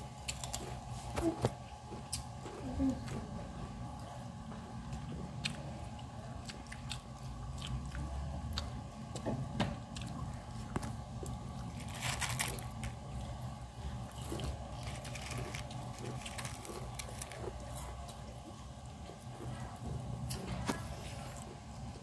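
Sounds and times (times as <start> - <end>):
person chewing food: 0.0 - 22.0.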